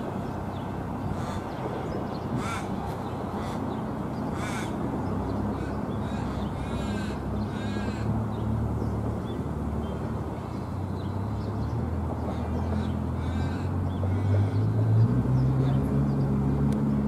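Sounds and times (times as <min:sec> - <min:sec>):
crow cawing: 0:04.4 - 0:04.8.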